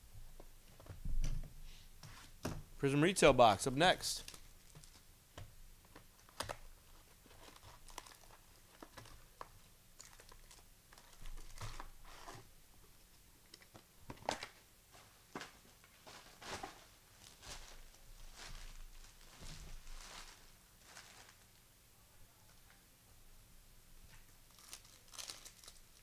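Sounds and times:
plastic and cardboard crinkling: 4.2s - 5.1s, 5.9s - 12.5s, 13.5s - 21.6s, 24.5s - 26.0s.

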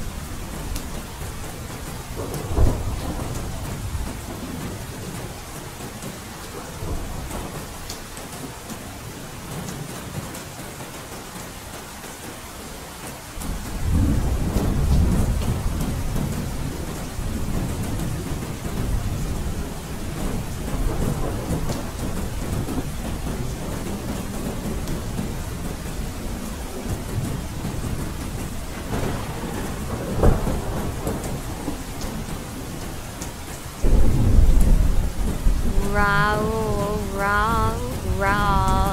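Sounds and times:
steady rain: 0.0s - 38.9s
rolling thunder: 2.1s - 4.9s, 13.8s - 25.6s, 26.2s - 32.7s, 33.8s - 35.7s.

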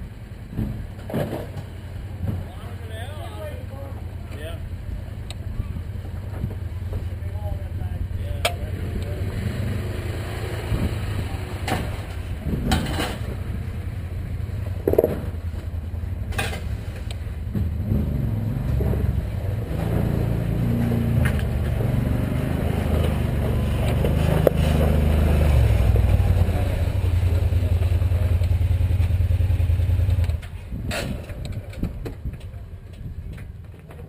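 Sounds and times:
engine idling: 0.0s - 9.8s, 10.7s - 19.8s, 21.1s - 33.3s
vehicle driving over rocks: 0.4s - 3.0s, 8.4s - 34.0s
sharp knocks: 14.8s - 15.4s.

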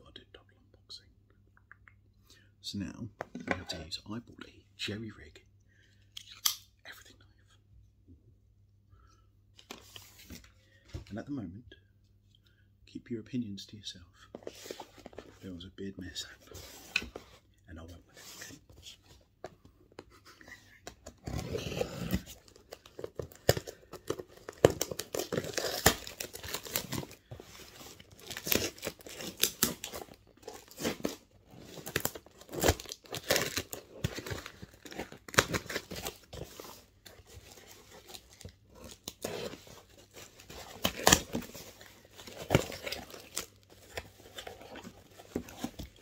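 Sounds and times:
cardboard tearing: 21.2s - 46.0s.

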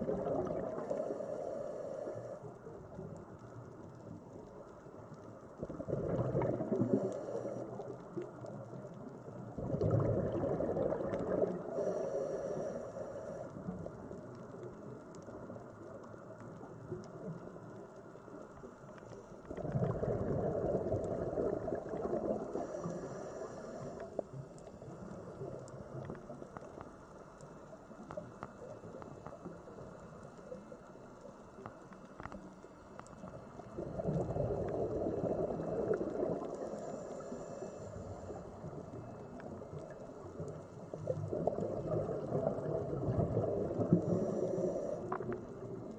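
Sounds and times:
steady underwater rush: 0.0s - 3.4s, 5.0s - 14.4s, 19.0s - 27.2s, 33.1s - 45.9s
underwater bubbling: 0.0s - 45.9s.

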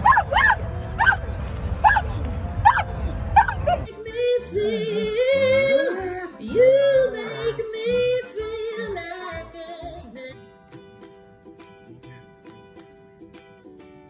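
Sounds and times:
dog howling: 0.0s - 1.2s, 1.8s - 3.9s.

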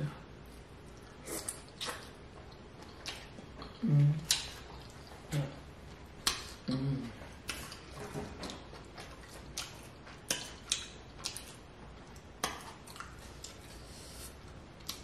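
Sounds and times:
person chewing with smacks: 0.8s - 15.0s
person humming mm: 3.8s - 4.3s, 6.7s - 7.2s.

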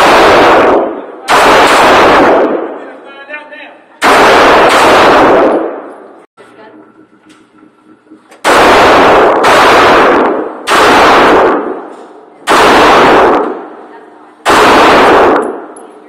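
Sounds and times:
pistol shots echoing indoors: 0.0s - 2.9s, 4.0s - 6.2s, 8.4s - 15.8s.

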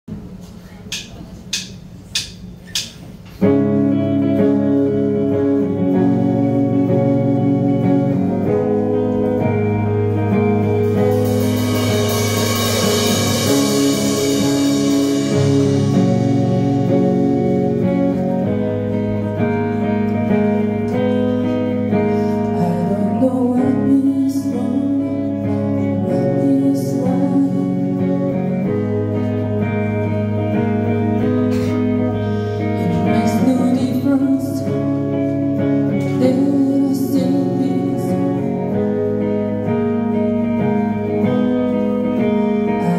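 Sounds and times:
rock band playing: 1.6s - 42.9s
cymbal wash: 10.8s - 18.1s
woman singing: 22.4s - 28.8s, 32.8s - 39.0s, 42.1s - 42.9s.

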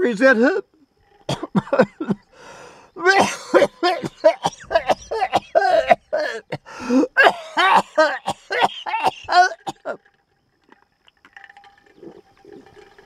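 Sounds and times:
man coughing: 1.3s - 2.2s, 3.0s - 10.0s
man speaking: 3.0s - 4.0s.

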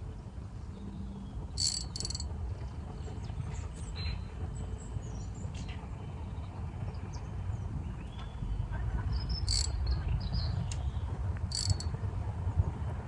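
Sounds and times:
sharp clicks: 10.7s - 11.9s.

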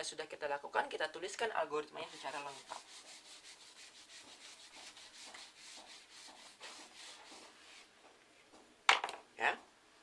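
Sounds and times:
eraser wiping whiteboard: 2.0s - 7.9s.

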